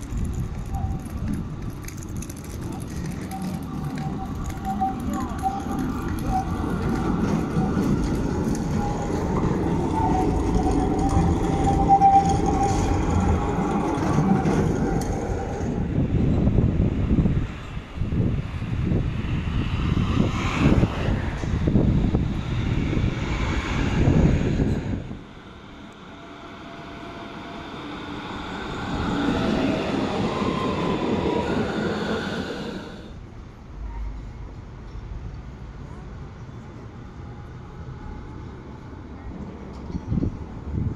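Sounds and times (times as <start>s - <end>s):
wavering tram whine: 0.0s - 34.0s
tram rumbling on rails: 0.0s - 40.9s
metallic wheel squeal: 3.2s - 14.8s.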